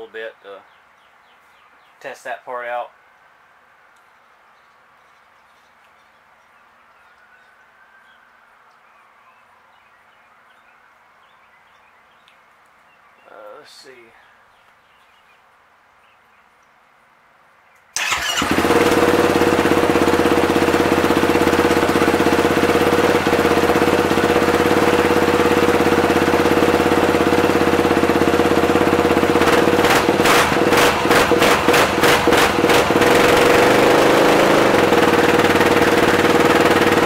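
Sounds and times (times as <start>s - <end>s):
engine pops: 18.0s - 33.8s
quad bike engine idling: 18.0s - 37.0s.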